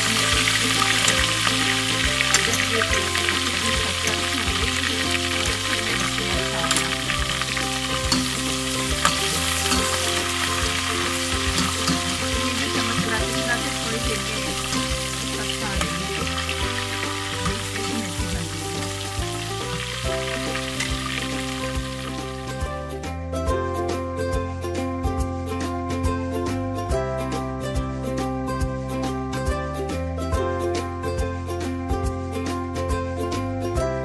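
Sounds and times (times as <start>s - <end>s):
hot oil sizzling: 0.0s - 26.6s
spoon stirring in steel pan: 0.1s - 18.5s.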